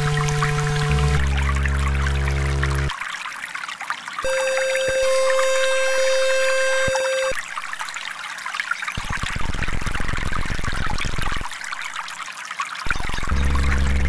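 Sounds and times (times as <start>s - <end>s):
steady electronic tone: 0.0s - 2.9s, 4.2s - 7.4s, 13.2s - 14.0s
trickling running water: 0.0s - 14.0s.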